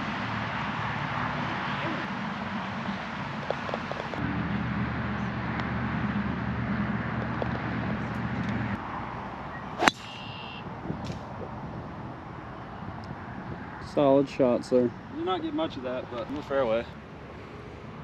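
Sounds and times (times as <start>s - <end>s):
vehicle engine humming: 0.0s - 10.8s
golf club striking ball: 9.8s - 10.5s.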